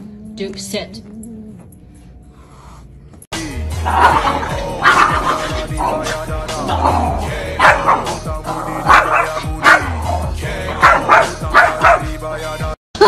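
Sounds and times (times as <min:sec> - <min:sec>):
background music: 0:03.3 - 0:13.0
small dog barking: 0:08.9 - 0:09.9, 0:10.8 - 0:12.1.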